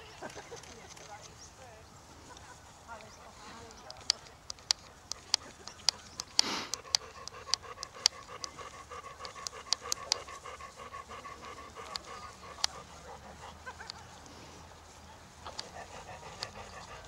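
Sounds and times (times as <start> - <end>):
rhythmic panting: 0.7 - 17.0
sharp clicks: 3.0 - 14.4, 15.5 - 17.0.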